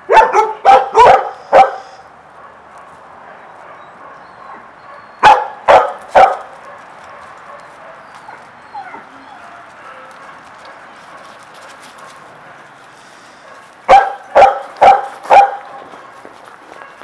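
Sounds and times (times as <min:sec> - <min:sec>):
dog barking: 0:00.1 - 0:02.6, 0:03.6 - 0:08.0, 0:13.4 - 0:15.8.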